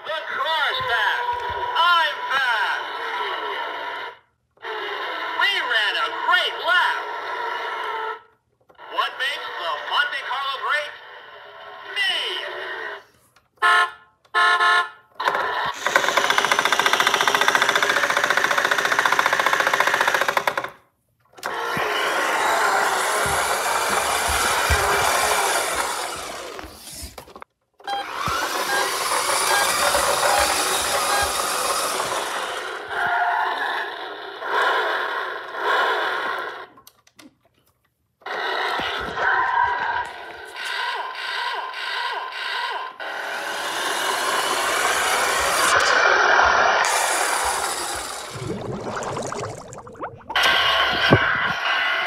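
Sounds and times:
toy car motor whirring: 0:21.4 - 0:36.8, 0:40.1 - 0:48.3.

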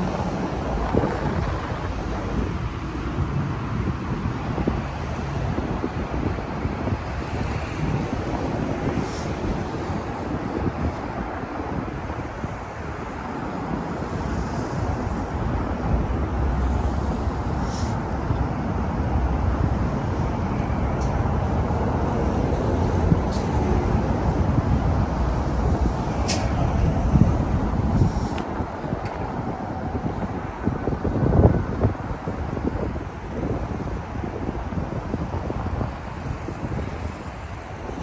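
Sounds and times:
road traffic: 0:00.0 - 0:38.0
sharp click: 0:26.2 - 0:26.6.

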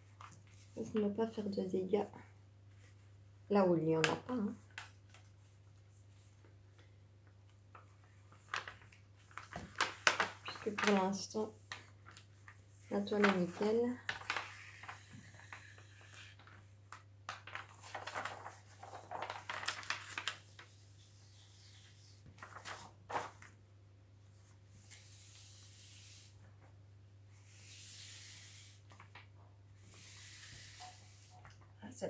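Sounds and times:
plastic sheet crinkling: 0:07.7 - 0:23.6, 0:28.6 - 0:29.3.

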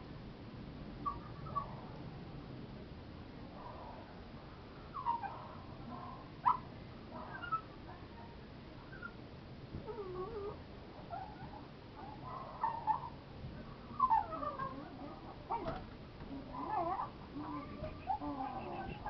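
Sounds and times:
puppy whimpering: 0:09.9 - 0:11.5, 0:16.6 - 0:19.0.

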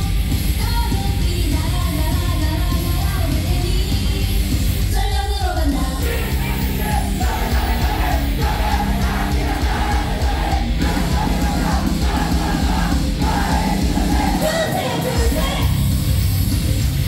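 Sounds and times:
loud live music through a pa: 0:00.0 - 0:17.0
heavy bass-driven beat: 0:05.9 - 0:17.0
person shout-singing: 0:06.0 - 0:15.8.

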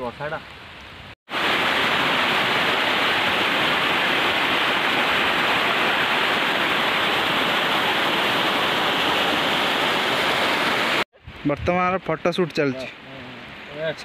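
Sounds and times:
water rushing down spillway: 0:01.3 - 0:11.0.

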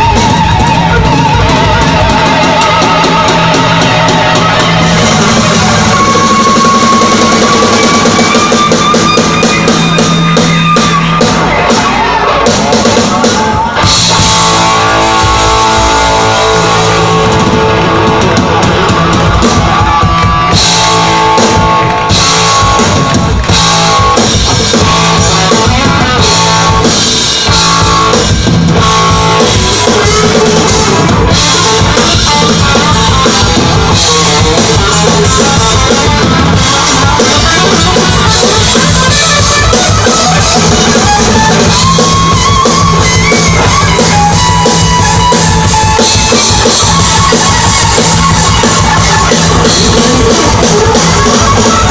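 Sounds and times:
bass guitar: 0:00.0 - 0:51.9
drum kit: 0:00.0 - 0:51.9
electric guitars: 0:00.0 - 0:51.9.

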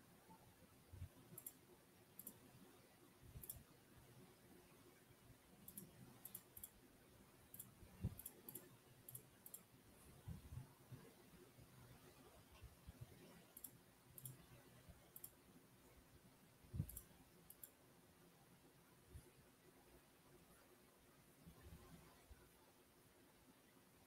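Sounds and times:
computer mouse clicks: 0:01.0 - 0:02.7, 0:03.3 - 0:03.7, 0:05.6 - 0:06.8, 0:07.4 - 0:09.7, 0:12.6 - 0:15.4, 0:16.7 - 0:17.8.

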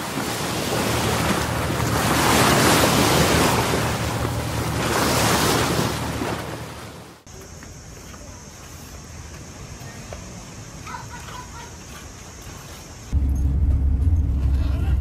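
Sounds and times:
surf breaking on beach: 0:00.0 - 0:07.2.

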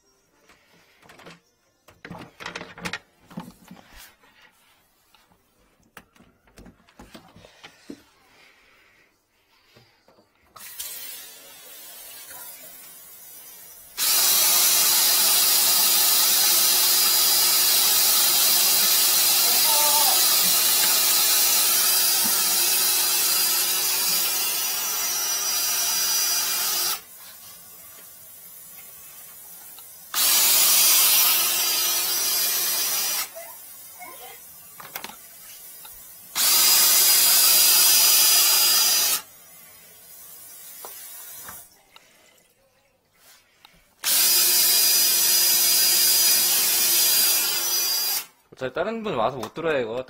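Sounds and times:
drain cleaning machine motor: 0:14.0 - 0:27.0.

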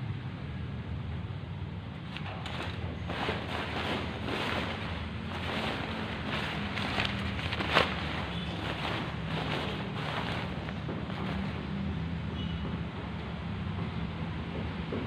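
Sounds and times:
tent fabric rustling and crinkling: 0:02.0 - 0:12.2.

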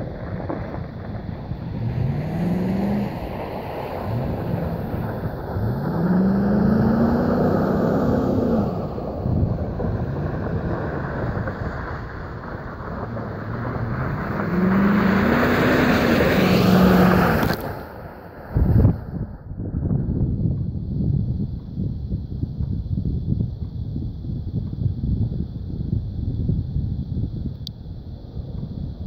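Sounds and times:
steady rushing noise: 0:00.0 - 0:29.0
truck engine revving: 0:00.4 - 0:17.9.

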